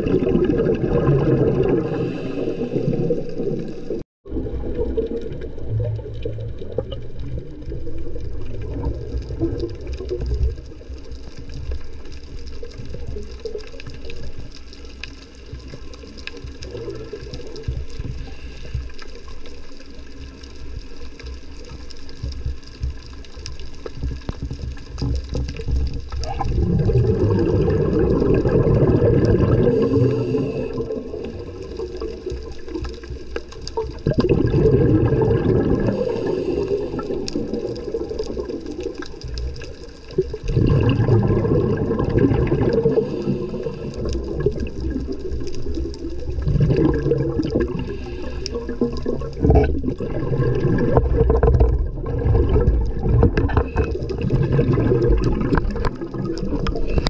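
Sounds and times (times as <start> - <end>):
scuba regulator exhale bubbling: 0.0 - 20.1, 23.7 - 57.0
low underwater rumble: 0.0 - 57.0
faint crackling clicks: 1.6 - 57.0.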